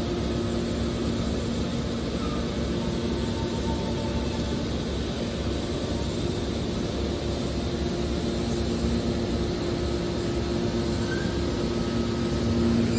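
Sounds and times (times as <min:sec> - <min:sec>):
hydraulic motor and pump drone: 0:00.0 - 0:12.9.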